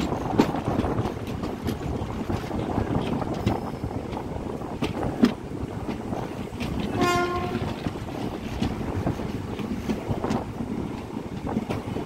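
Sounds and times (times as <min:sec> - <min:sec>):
train rumbling: 0:00.0 - 0:12.0
wheel clicks over rail joints: 0:00.0 - 0:12.0
short train horn blast: 0:06.8 - 0:07.8.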